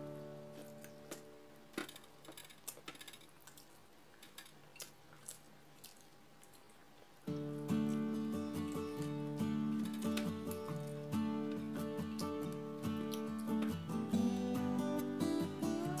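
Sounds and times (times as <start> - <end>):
person chewing: 1.9 - 11.1, 11.8 - 13.6.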